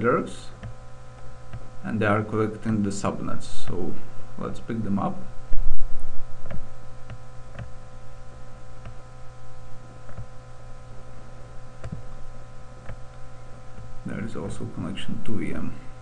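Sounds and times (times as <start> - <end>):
electrical mains hum: 0.0 - 16.0
mouse clicks: 10.1 - 10.3, 11.8 - 12.0.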